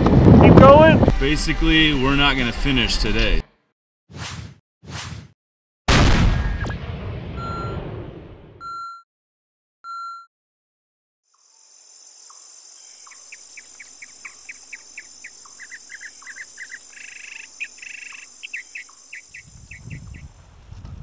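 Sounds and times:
high-pitched insect trill: 11.3 - 20.2
bird chirping: 11.4 - 20.3.

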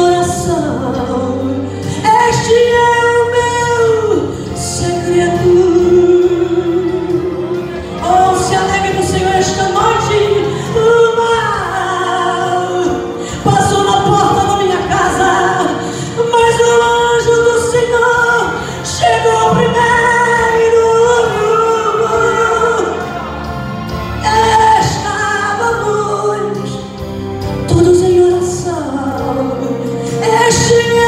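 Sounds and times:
woman singing gospel song: 0.0 - 31.0.

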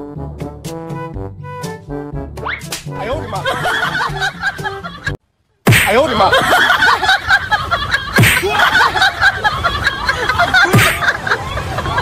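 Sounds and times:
crowd laughing: 3.0 - 5.2, 6.0 - 12.0
sharp falling swoops: 5.7 - 6.1, 8.2 - 8.8, 10.7 - 11.1.

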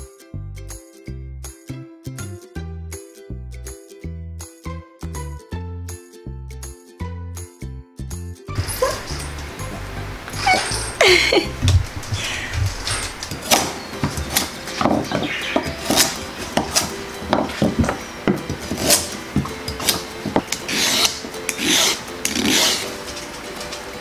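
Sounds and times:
knife chopping on wooden board: 13.4 - 20.5.

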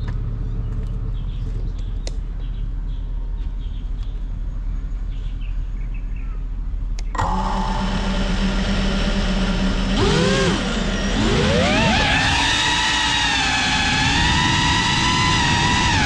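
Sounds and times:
drone motors humming: 7.0 - 16.0
drone motors arming click: 9.5 - 16.0.

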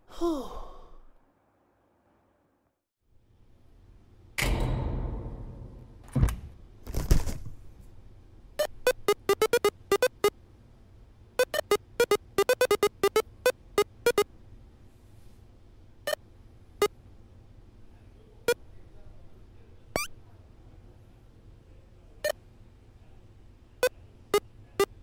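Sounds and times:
high squeaky cartoon chirps: 11.4 - 14.2, 20.0 - 20.2.

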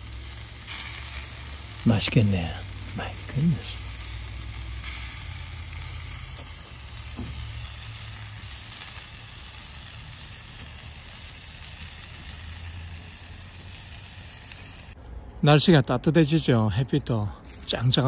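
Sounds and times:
meat sizzling over open fire: 0.0 - 15.0, 17.4 - 18.0.

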